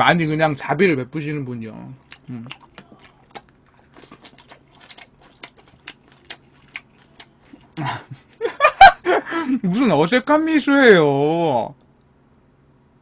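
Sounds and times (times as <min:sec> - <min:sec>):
person chewing: 0:01.8 - 0:08.4.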